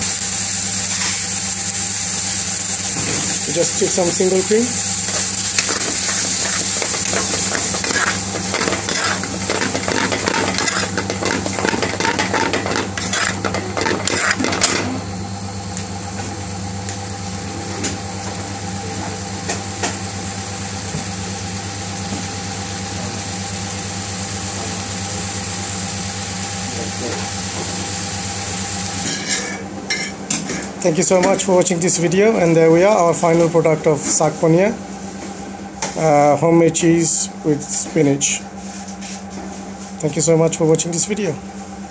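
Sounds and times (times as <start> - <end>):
curry sizzling: 0.0 - 15.9
steady hum: 0.0 - 41.9
metal spoon scraping a pan: 5.1 - 14.8.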